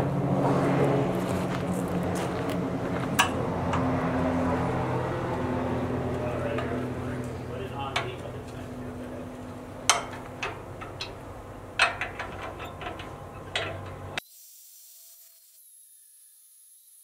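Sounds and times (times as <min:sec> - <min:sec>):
wrench clinking on metal: 0:11.8 - 0:14.2.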